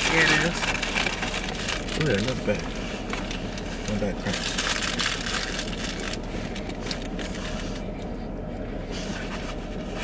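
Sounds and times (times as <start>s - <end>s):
paper and wrapper crinkling: 0.0s - 7.8s
car engine rumble inside cabin: 0.0s - 10.0s.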